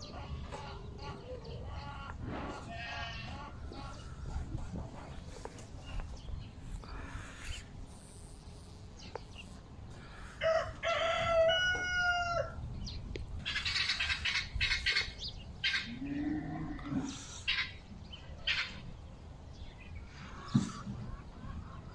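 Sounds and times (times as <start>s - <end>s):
rooster crowing: 10.4s - 12.6s.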